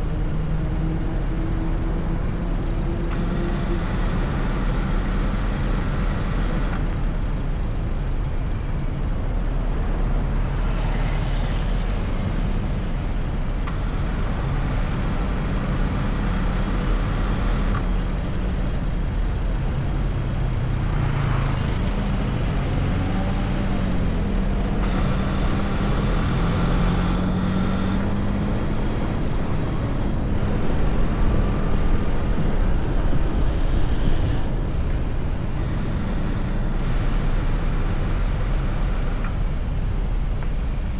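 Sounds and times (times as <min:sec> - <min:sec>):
car engine hum and road rumble: 0:00.0 - 0:40.9
passing traffic rushing: 0:08.8 - 0:40.9.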